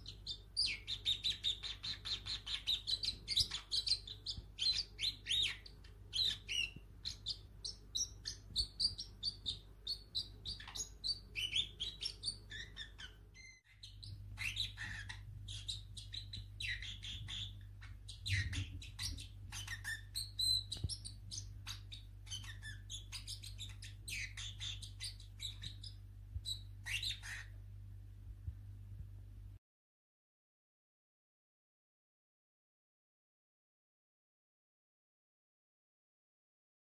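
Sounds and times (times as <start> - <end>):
parrot chirping: 0.0 - 27.6.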